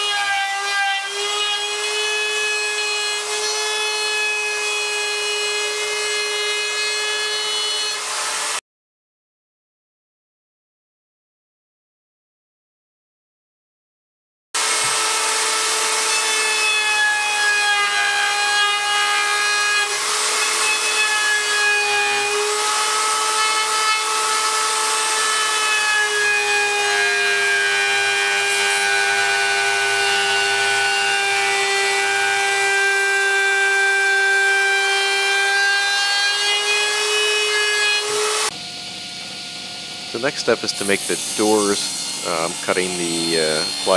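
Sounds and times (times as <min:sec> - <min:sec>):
wood router motor whine: 0:14.6 - 0:43.9.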